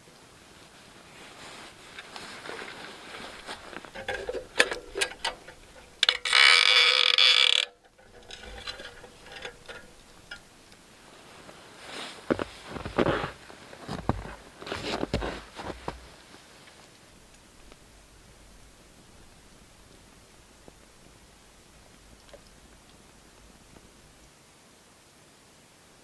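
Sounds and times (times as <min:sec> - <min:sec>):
lantern wire frame rattling: 0:01.5 - 0:16.3.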